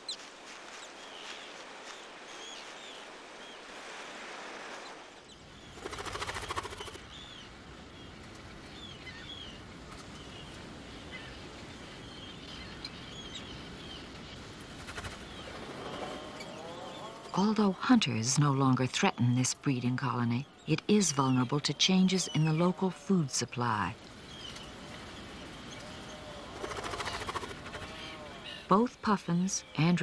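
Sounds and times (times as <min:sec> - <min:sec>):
steady rushing background: 0:00.2 - 0:07.0, 0:14.2 - 0:17.4, 0:26.4 - 0:28.6
terns calling: 0:04.8 - 0:30.0.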